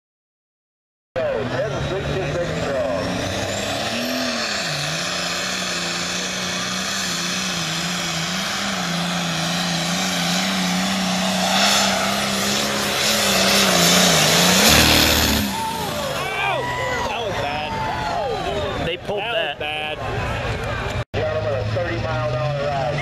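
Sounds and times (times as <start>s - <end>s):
tractor diesel engine at full throttle: 1.2s - 17.7s, 21.2s - 23.0s.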